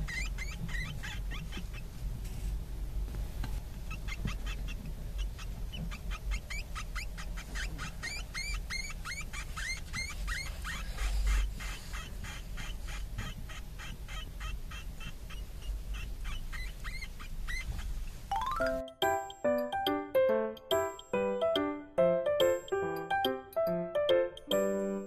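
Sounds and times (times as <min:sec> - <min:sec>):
hamster pups squeaking: 0:00.0 - 0:02.0, 0:03.8 - 0:21.6.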